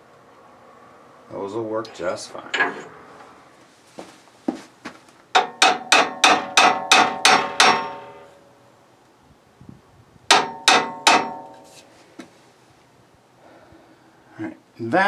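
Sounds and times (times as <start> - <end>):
hammer striking metal fitting: 5.4 - 8.3, 10.3 - 11.9.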